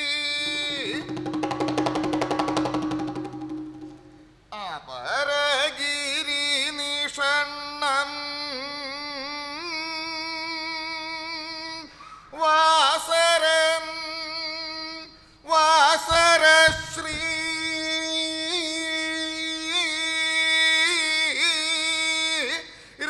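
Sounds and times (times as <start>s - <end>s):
percussion strikes: 0.4s - 4.6s.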